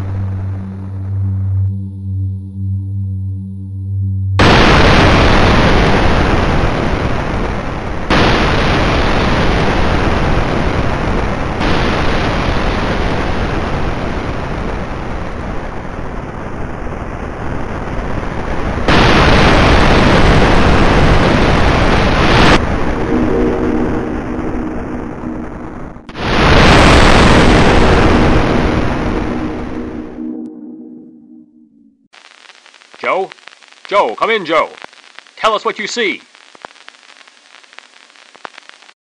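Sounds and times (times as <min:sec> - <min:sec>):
rocket engine firing: 0:04.4 - 0:16.9, 0:17.5 - 0:30.4.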